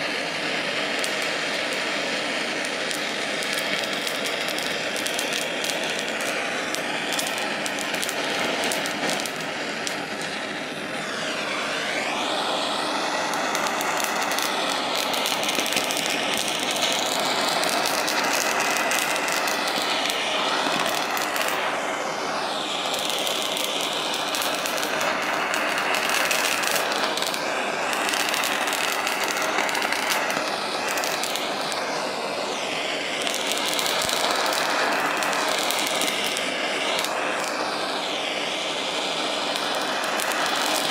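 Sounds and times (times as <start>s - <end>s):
blowtorch hissing: 0.0s - 40.9s
small crackling clicks: 2.9s - 10.0s, 33.2s - 37.6s, 39.6s - 40.9s.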